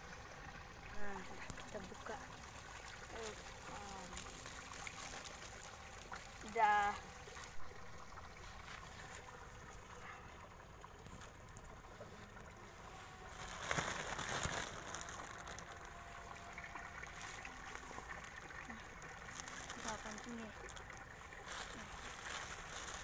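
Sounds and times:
water sloshing in plastic bag: 0:00.1 - 0:23.0
plastic rustling: 0:01.0 - 0:09.7, 0:11.0 - 0:23.0.

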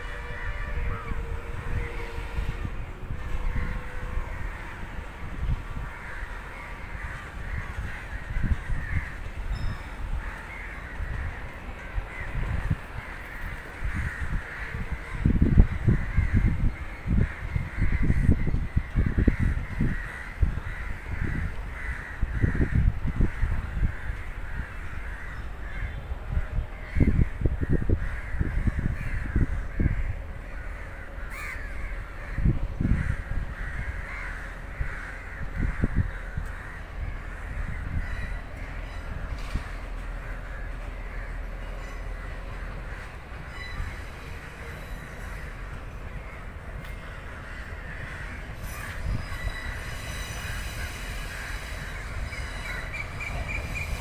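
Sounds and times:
train rumbling over points: 0:00.0 - 0:54.0
crows cawing: 0:05.8 - 0:09.3, 0:12.0 - 0:26.0, 0:26.8 - 0:39.0, 0:43.8 - 0:54.0.

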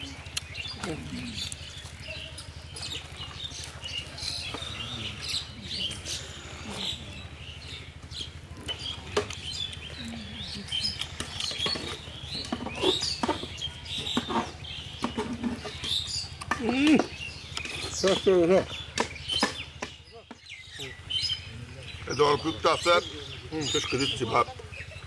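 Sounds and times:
wet chewing and lip-smacking: 0:00.0 - 0:06.9, 0:08.6 - 0:18.2
low steady hum: 0:00.0 - 0:25.0.

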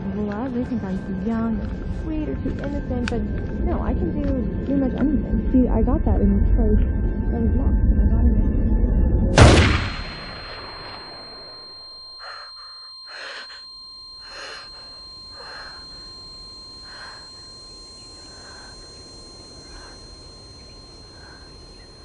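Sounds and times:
girl sobbing muffled: 0:12.2 - 0:15.9.

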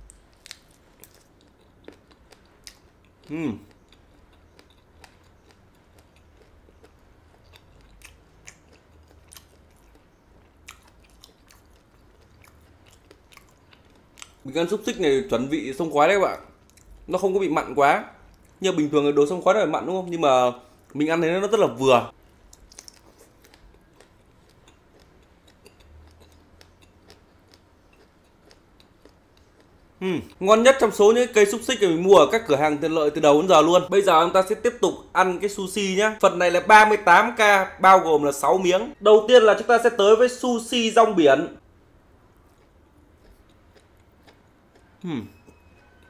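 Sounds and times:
person chewing: 0:00.0 - 0:15.0, 0:16.5 - 0:17.1, 0:18.2 - 0:18.6, 0:22.1 - 0:30.4, 0:42.2 - 0:46.0.

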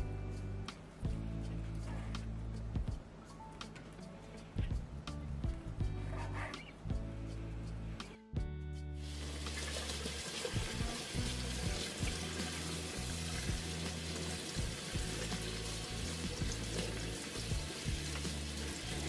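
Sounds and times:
background music: 0:00.0 - 0:19.0
tap water running into sink: 0:09.0 - 0:19.0.

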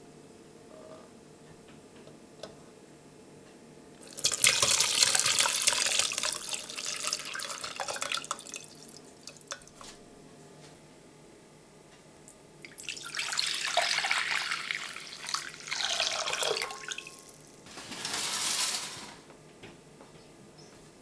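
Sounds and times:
liquid pouring and splashing: 0:04.0 - 0:09.8, 0:12.6 - 0:17.4.

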